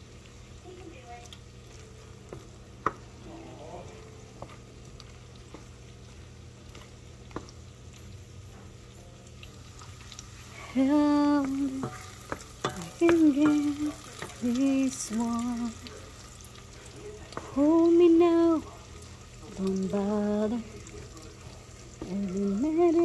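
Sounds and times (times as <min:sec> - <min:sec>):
food sizzling in a frying pan: 0:00.0 - 0:23.0
wooden spatula stirring: 0:03.9 - 0:08.0, 0:08.8 - 0:17.9.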